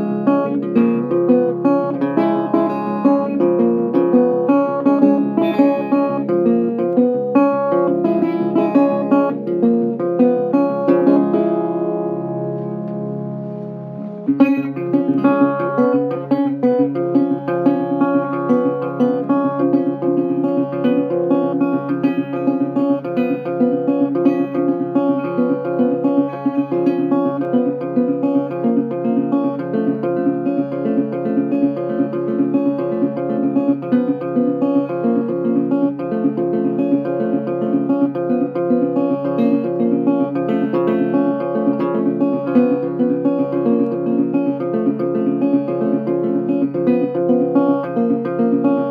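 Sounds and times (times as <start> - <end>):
fast guitar music: 0.0 - 48.9.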